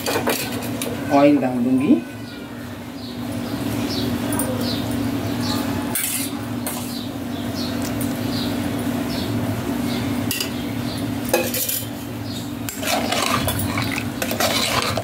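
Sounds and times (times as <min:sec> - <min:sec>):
ladle scraping metal pot: 0:12.7 - 0:15.0.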